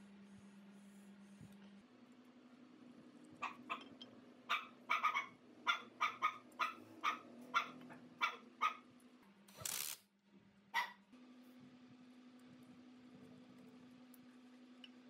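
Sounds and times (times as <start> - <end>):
dog barking: 3.4 - 3.9, 4.5 - 8.9, 10.7 - 11.0.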